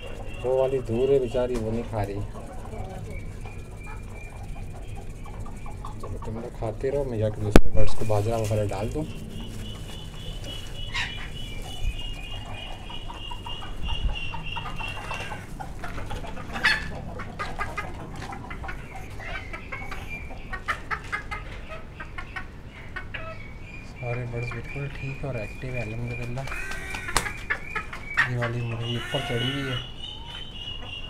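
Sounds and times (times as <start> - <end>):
chickens clucking: 0.0 - 31.0
high pulsing chicken call: 8.1 - 17.9, 26.5 - 30.4.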